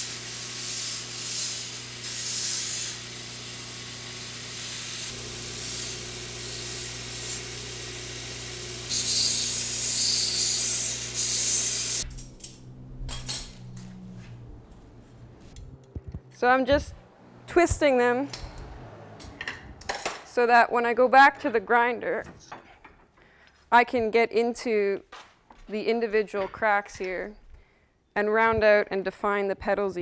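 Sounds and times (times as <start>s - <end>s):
metal grinding hiss: 0.0s - 13.7s
belt grinder humming: 0.0s - 15.7s.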